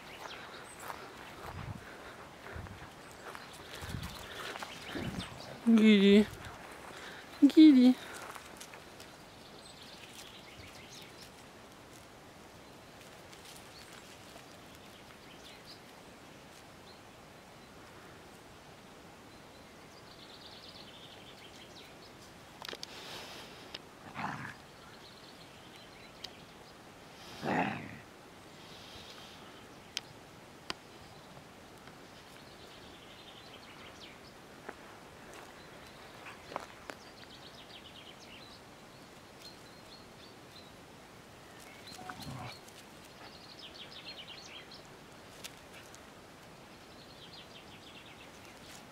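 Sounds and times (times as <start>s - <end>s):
distant birds chirping: 0.0s - 11.3s
faint outdoor background noise: 0.0s - 48.9s.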